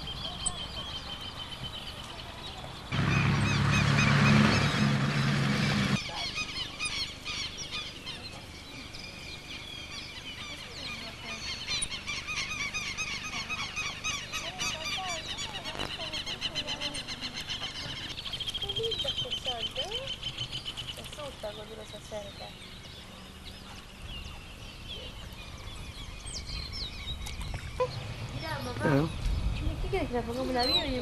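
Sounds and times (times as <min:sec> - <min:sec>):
loud rushing noise with hum: 0:02.9 - 0:06.0.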